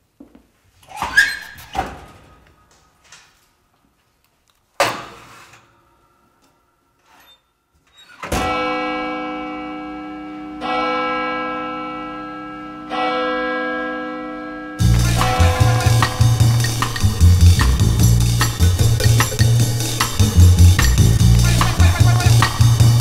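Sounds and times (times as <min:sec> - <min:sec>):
church bell tolling: 0:08.3 - 0:23.0.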